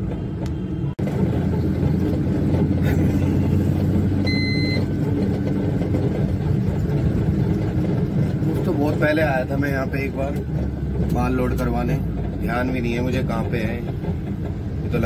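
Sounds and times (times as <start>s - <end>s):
road rumble: 0.0s - 15.0s
truck engine running: 0.0s - 15.0s
short high beep: 4.2s - 4.9s.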